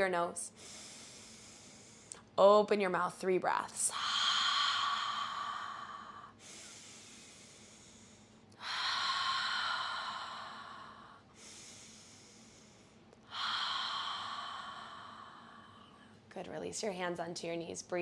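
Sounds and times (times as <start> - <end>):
quiet breathing: 0.0 - 2.4, 3.8 - 16.3
woman exhaling deeply: 3.9 - 16.0.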